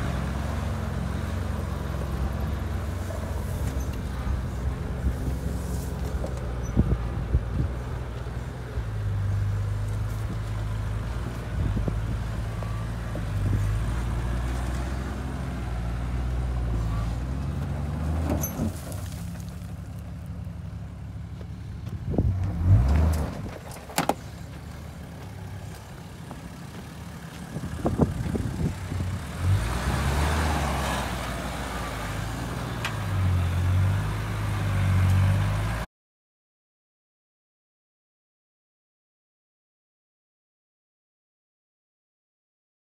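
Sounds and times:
engine revving: 22.1s - 23.5s, 27.9s - 35.8s.

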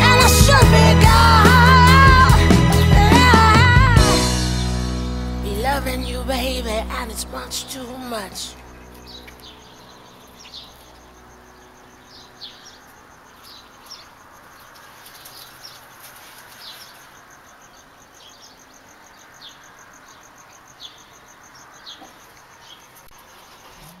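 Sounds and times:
pulsing insect trill: 5.4s - 24.0s
high bird chirps: 8.4s - 14.1s.

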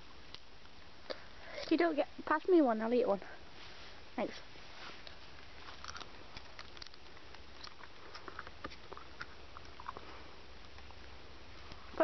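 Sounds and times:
background hiss: 0.0s - 12.0s
mouth clicks and crackles: 5.0s - 12.0s.

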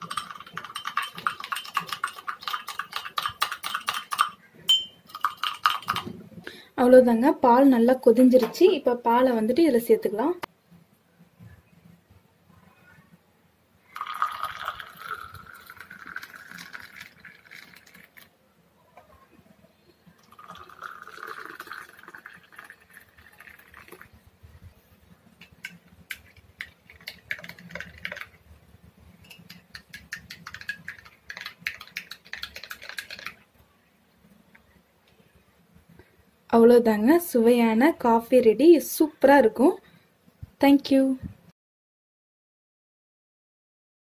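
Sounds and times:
spoon clinking in glass mug: 0.0s - 6.1s
milk pouring into glass: 13.8s - 18.3s, 20.2s - 24.2s, 25.4s - 28.4s.

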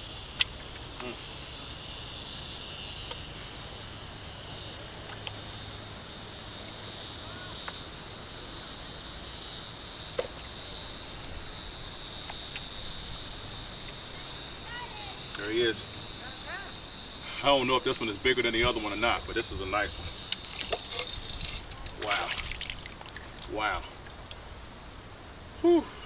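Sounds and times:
insect chorus: 0.0s - 26.0s
faint clicks and rustles: 20.0s - 24.7s.

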